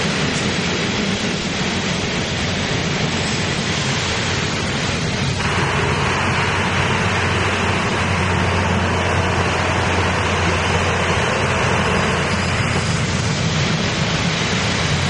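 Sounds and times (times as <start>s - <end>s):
train diesel engines droning: 0.0s - 15.0s
low hum: 1.2s - 15.0s.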